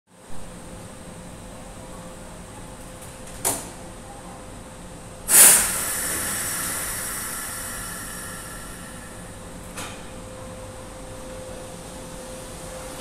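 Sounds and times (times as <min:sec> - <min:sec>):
compressed air hissing: 0:05.3 - 0:09.6.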